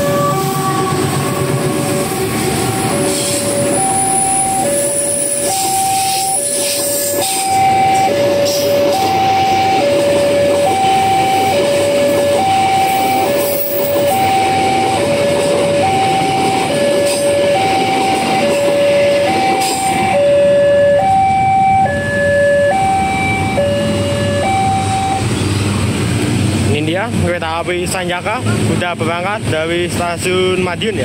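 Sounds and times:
train rumbling along tracks: 0.0s - 31.0s
level crossing two-tone alarm: 2.5s - 25.4s.

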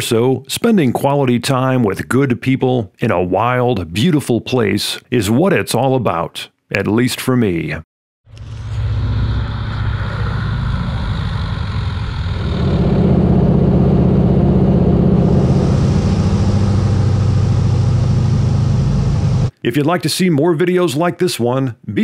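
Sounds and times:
plane engine and propeller drone: 8.3s - 19.5s.

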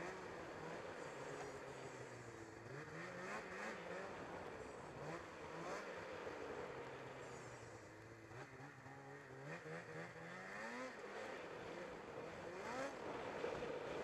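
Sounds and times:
snowmobile engine revving: 2.6s - 4.2s, 8.4s - 13.6s.

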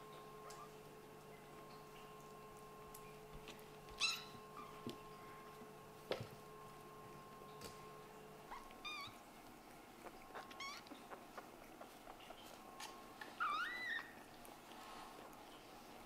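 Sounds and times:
kittens meowing: 10.3s - 11.2s.

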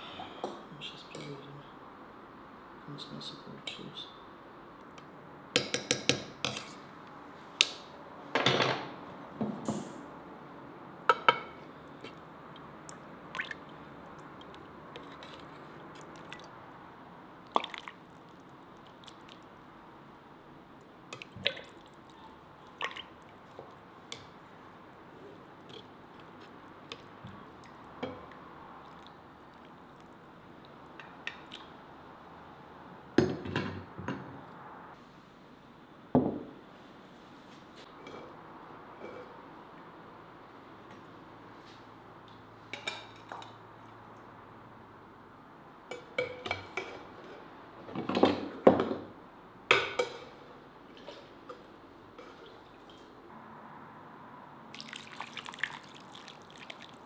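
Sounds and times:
broth pouring and dripping: 54.7s - 57.0s.

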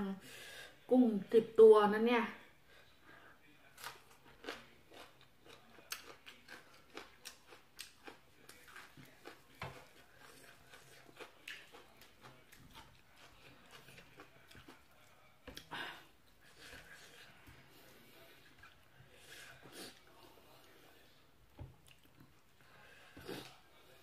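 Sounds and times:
person chewing crunchy vegetables: 3.7s - 15.8s.

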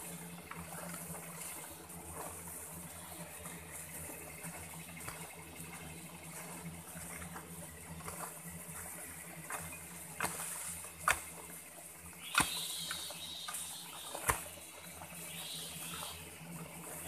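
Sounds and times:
hoe chopping into soil: 9.5s - 11.3s, 12.2s - 14.5s.

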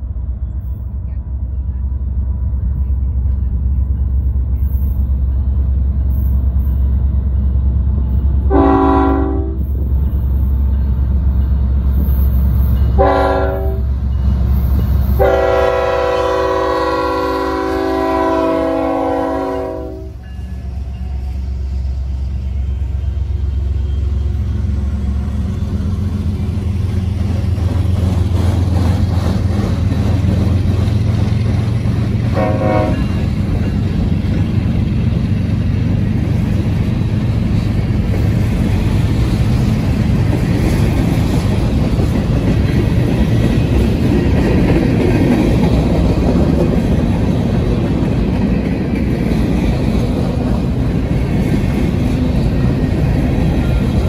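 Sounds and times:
locomotive and train rumbling: 0.0s - 54.0s
locomotive air horn: 8.5s - 9.7s, 13.0s - 13.9s, 15.2s - 20.2s, 32.3s - 33.2s.

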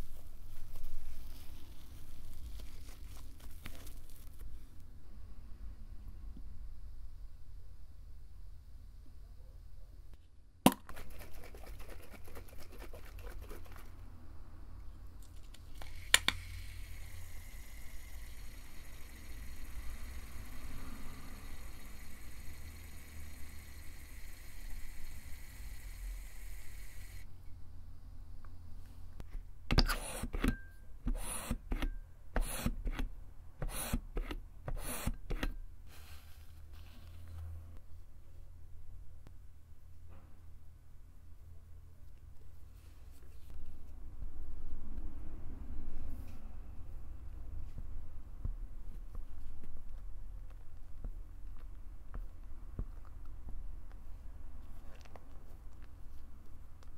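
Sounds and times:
soap pump bottle squirting: 10.8s - 13.9s.

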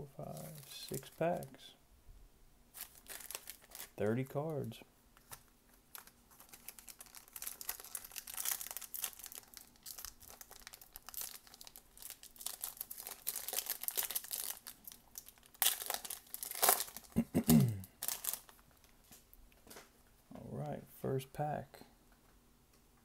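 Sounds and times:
foil wrapper crinkling and tearing: 2.7s - 17.2s, 18.0s - 18.6s.

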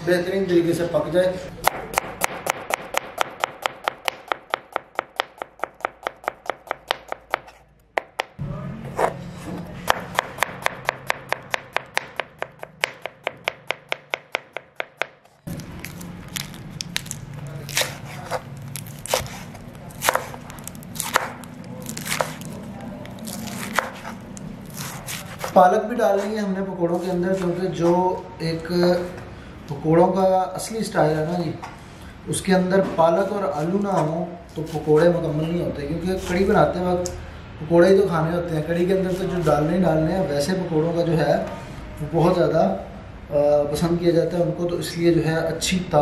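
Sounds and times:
knife chopping on cutting board: 1.6s - 8.4s, 9.0s - 15.3s, 17.7s - 22.5s, 23.3s - 25.6s.

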